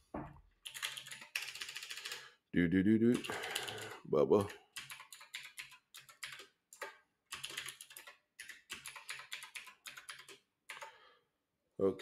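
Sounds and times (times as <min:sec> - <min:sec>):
typing on keyboard: 0:00.6 - 0:02.2, 0:03.1 - 0:10.9.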